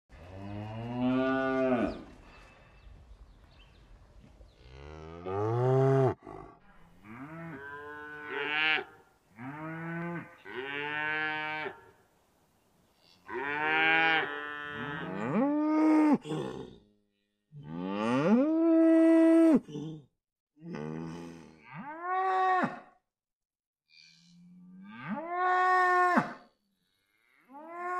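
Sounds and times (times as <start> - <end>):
cattle mooing: 4.7 - 11.8.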